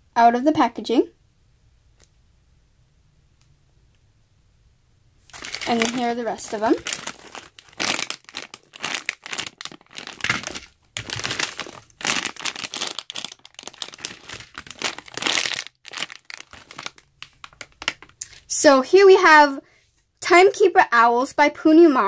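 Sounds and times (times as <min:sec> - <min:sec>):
plastic bags crinkling: 0:05.3 - 0:18.5.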